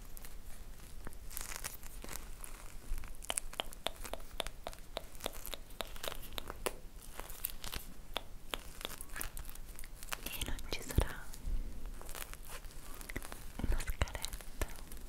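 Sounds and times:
soft crinkling: 0.0s - 15.0s
sharp little clicks and taps: 3.2s - 6.8s, 8.1s - 9.1s.

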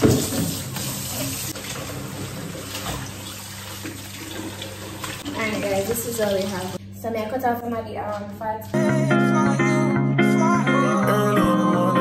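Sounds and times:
tap running into metal sink: 0.0s - 0.9s.

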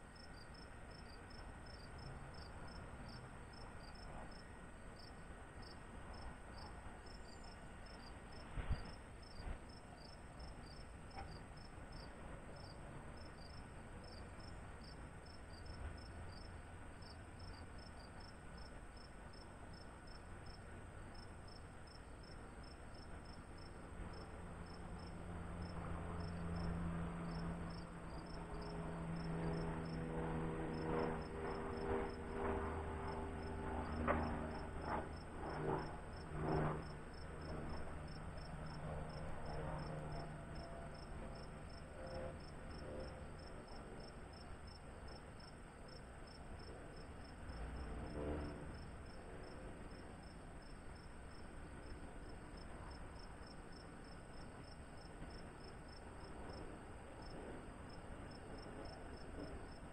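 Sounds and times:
crickets chirping: 0.0s - 59.9s
low motor hum: 46.7s - 49.8s.

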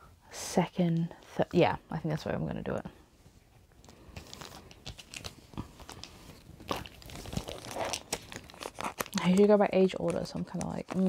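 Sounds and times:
plastic binder sleeves crinkling: 3.8s - 11.0s.

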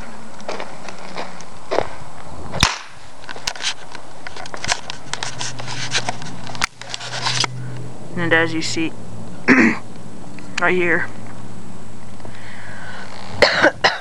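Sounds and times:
footsteps on gravelly dirt: 0.0s - 7.5s.

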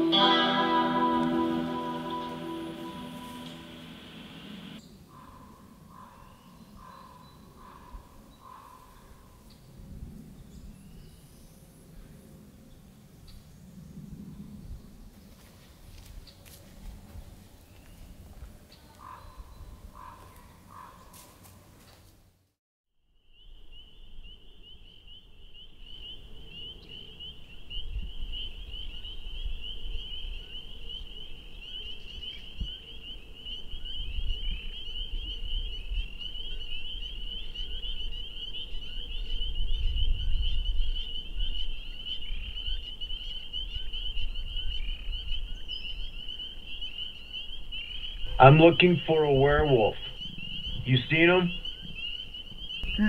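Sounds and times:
frogs calling: 2.8s - 8.8s, 23.3s - 53.0s.

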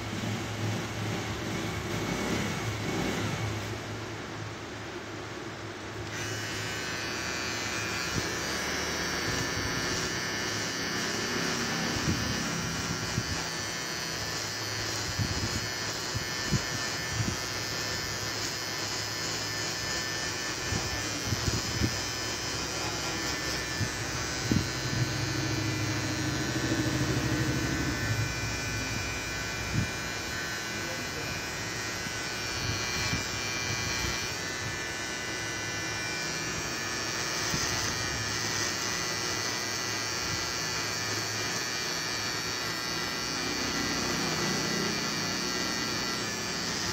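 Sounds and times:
beard trimmer buzzing: 1.5s - 3.7s, 5.9s - 46.9s.

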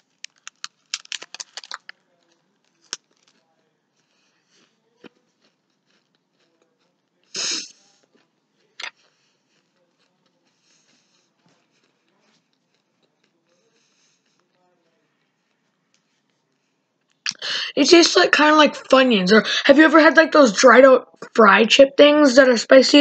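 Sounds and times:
person chewing crunchy food: 0.0s - 7.3s, 7.9s - 16.2s.

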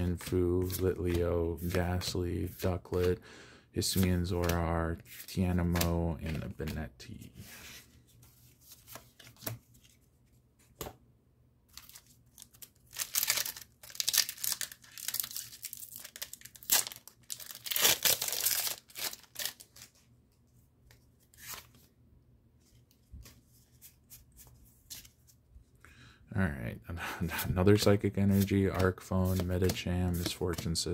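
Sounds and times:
foil wrapper tearing and crinkling: 11.8s - 19.8s.

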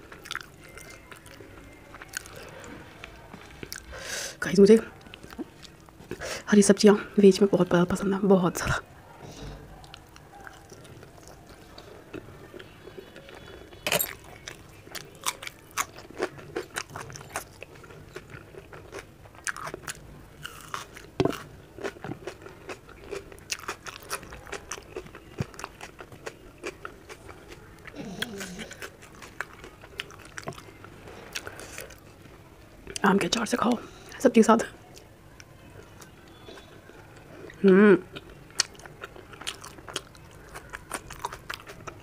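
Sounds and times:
person chewing crunchy food: 0.0s - 4.0s, 9.8s - 32.3s, 35.8s - 42.0s.

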